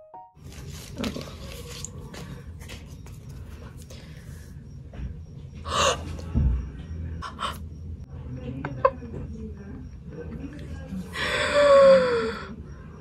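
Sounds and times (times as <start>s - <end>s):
packaging handling noises: 0.4s - 3.9s
low thump: 6.3s - 6.8s.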